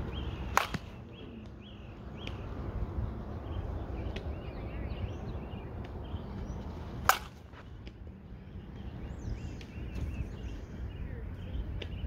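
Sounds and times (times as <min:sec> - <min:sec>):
birds chirping: 0:00.0 - 0:12.0
bat hitting softball: 0:00.4 - 0:01.0, 0:07.0 - 0:07.5.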